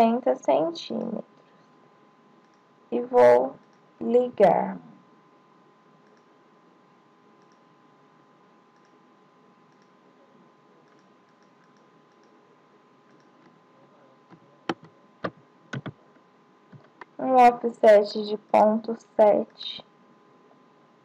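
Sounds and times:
faint background hum: 0:00.0 - 0:21.0
computer mouse clicks: 0:02.4 - 0:02.7, 0:03.6 - 0:03.8, 0:06.0 - 0:06.3, 0:07.4 - 0:07.6, 0:08.8 - 0:09.0, 0:09.7 - 0:10.0, 0:10.8 - 0:12.4, 0:13.1 - 0:13.6.

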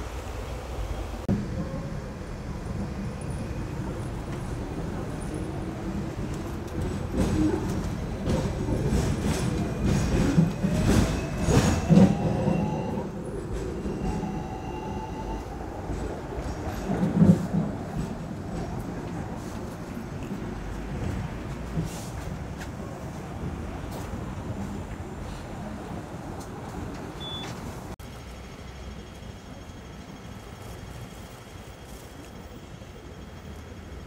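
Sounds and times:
tram passing alongside: 0:00.0 - 0:34.0
tram rumbling on rails: 0:00.0 - 0:34.0
wheels clacking on track: 0:00.6 - 0:14.6, 0:15.7 - 0:25.2.

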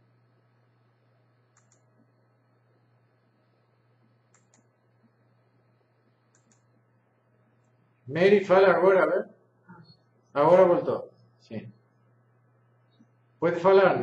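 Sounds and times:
faint steady hum: 0:00.0 - 0:14.0
computer mouse clicks: 0:01.5 - 0:01.9, 0:04.3 - 0:04.7, 0:06.3 - 0:06.8.

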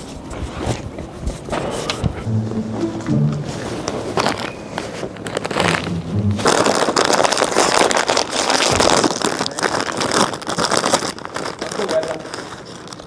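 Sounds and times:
chip bag crinkling: 0:05.2 - 0:13.0.

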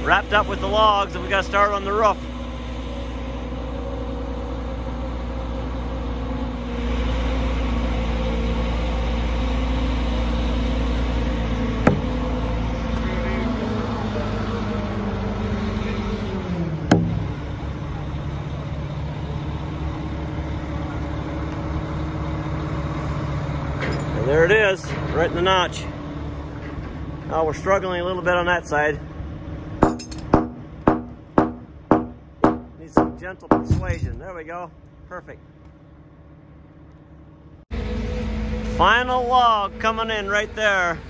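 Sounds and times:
truck engine running: 0:00.0 - 0:41.0
sharp knocks: 0:11.8 - 0:12.2, 0:16.9 - 0:17.4, 0:29.8 - 0:34.2.

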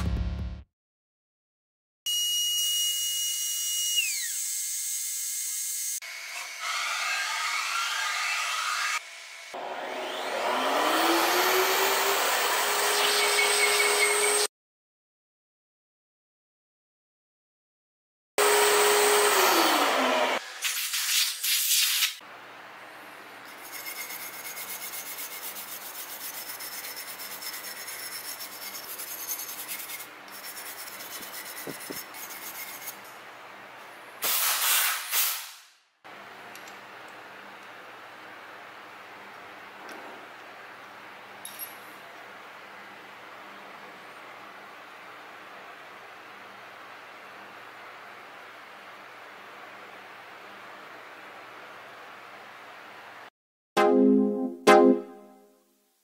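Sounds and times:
rough machining noise: 0:23.4 - 0:33.1
stiff brush scrubbing metal: 0:23.6 - 0:33.0.

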